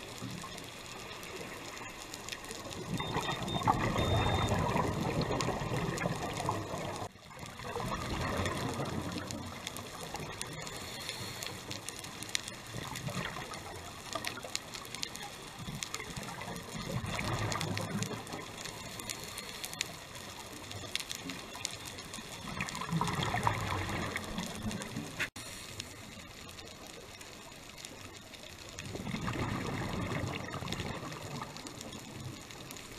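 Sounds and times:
faint clicks: 0.0 - 32.9
diver exhaling bubbles underwater: 7.6 - 9.4, 22.6 - 24.6.

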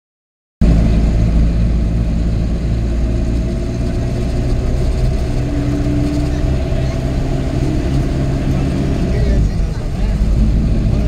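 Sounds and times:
road noise: 0.6 - 11.0
vehicle engine drone from inside cabin: 0.6 - 11.0.

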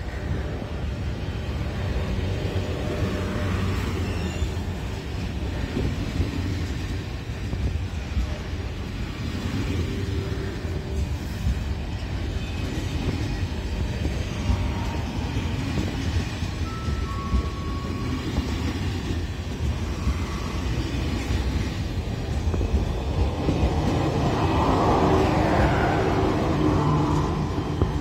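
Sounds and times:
train wheels rumbling on rails: 0.0 - 28.0
thin squeal: 3.8 - 4.6.

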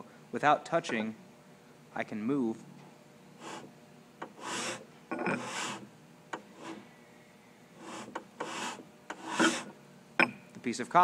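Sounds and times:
metal disc scraping across wood: 3.4 - 6.9, 7.8 - 9.8.

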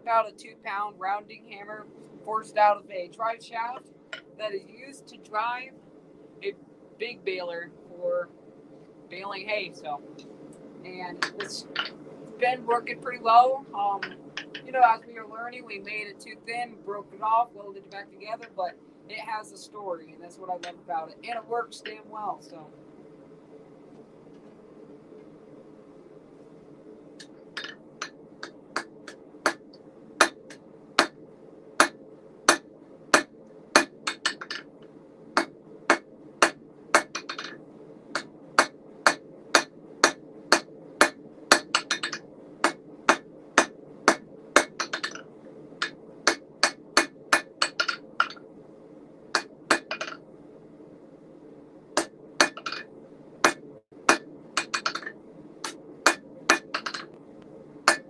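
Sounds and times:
forge humming: 0.0 - 58.0.

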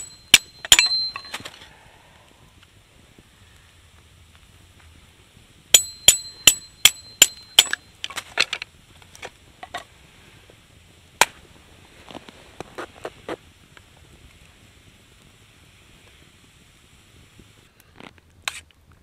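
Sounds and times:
knife striking wood with metallic ring: 0.0 - 1.4, 5.8 - 7.8.

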